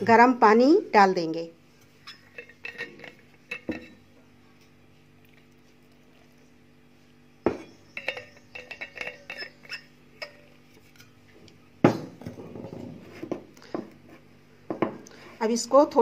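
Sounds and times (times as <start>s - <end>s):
ringing metallic clinks: 2.0s - 4.1s, 7.6s - 10.5s.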